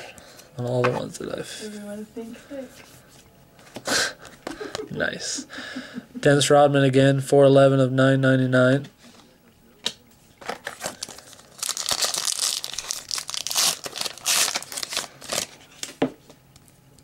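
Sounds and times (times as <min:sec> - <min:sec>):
wrapper tearing and crinkling: 0:10.4 - 0:16.0.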